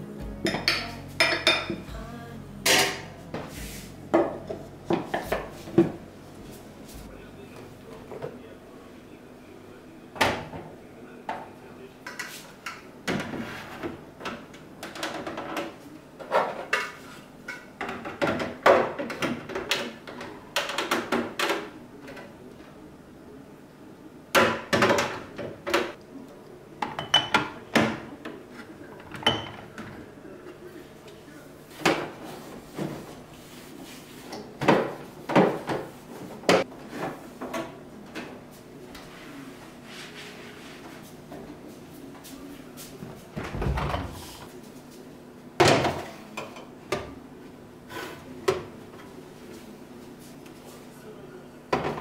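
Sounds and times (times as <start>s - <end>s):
glass jars and bottles clinking: 0.4s - 1.8s.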